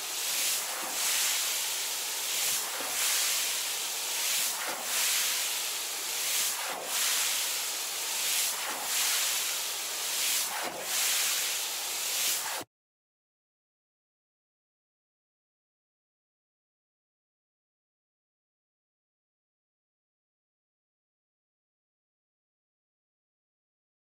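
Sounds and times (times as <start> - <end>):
water hose spraying onto car: 0.0 - 12.6.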